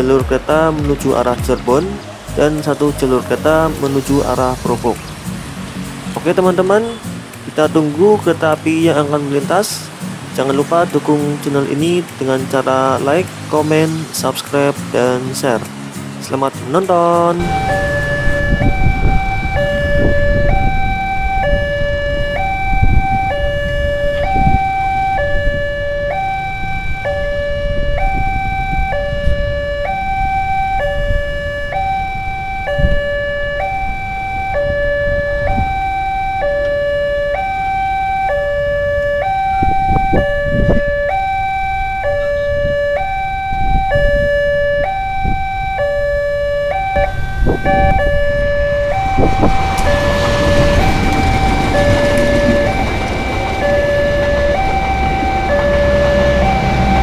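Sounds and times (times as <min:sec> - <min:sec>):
motorcycles and road traffic: 0:00.0 - 0:57.0
train rushing past: 0:17.4 - 0:27.3, 0:47.1 - 0:57.0
two-tone crossing alarm chime: 0:17.4 - 0:57.0.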